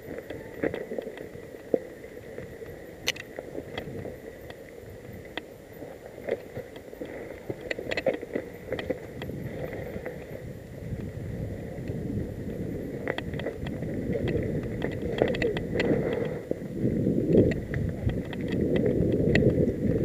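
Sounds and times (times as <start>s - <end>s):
bike clicks and rattles: 2.6s - 4.6s, 7.5s - 16.4s, 17.2s - 20.0s.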